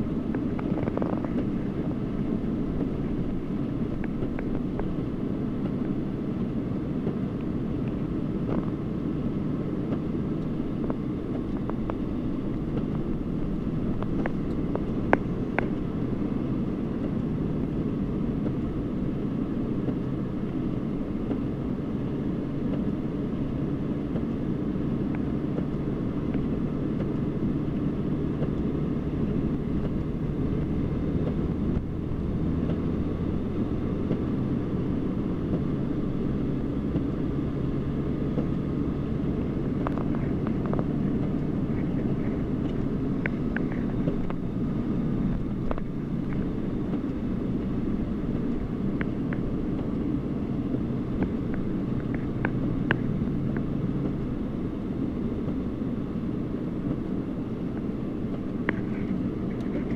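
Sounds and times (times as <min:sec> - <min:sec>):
vehicle engine and road drone: 0:00.0 - 0:59.9.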